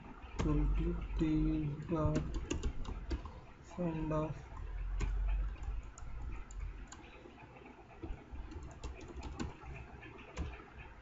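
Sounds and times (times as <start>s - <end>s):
computer keyboard keystroke clicks: 2.0s - 3.4s, 8.0s - 10.6s.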